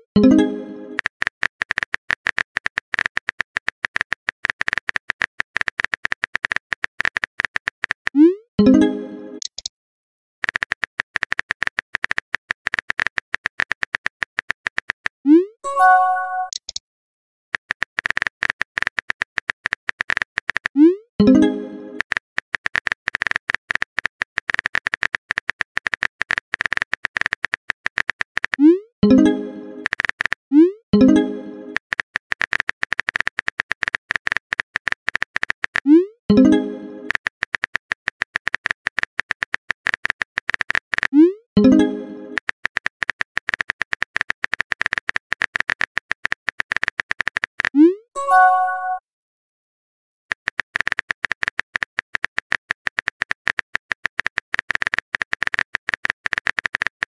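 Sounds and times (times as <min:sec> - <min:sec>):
message alert chime: 0:00.2 - 0:01.0, 0:08.6 - 0:09.4, 0:15.6 - 0:16.6, 0:21.2 - 0:22.0, 0:29.0 - 0:29.7, 0:48.2 - 0:49.0
short tone: 0:15.6 - 0:16.6, 0:48.2 - 0:49.0.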